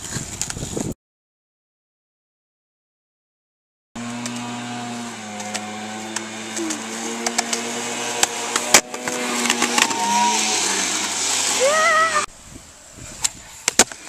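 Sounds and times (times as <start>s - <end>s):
skateboard wheels rolling on pavement: 4.0s - 12.3s
person calling out: 11.5s - 12.3s.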